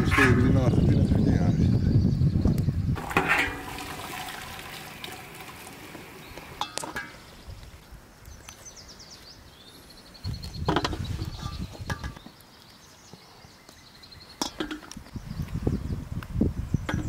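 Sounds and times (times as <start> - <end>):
bird chirping: 6.2 - 16.0.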